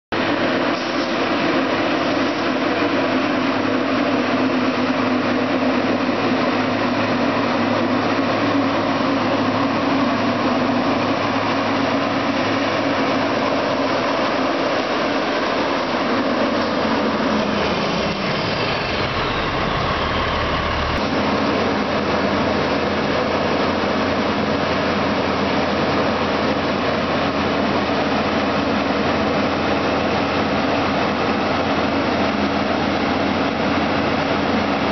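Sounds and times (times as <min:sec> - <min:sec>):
diesel engine running: 0:00.2 - 0:34.9
falling whine: 0:03.5 - 0:22.2.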